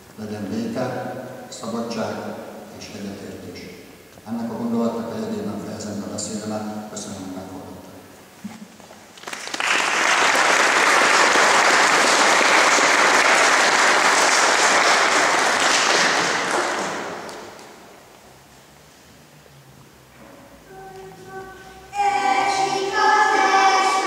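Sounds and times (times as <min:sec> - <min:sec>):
audience applauding: 0:09.2 - 0:17.8.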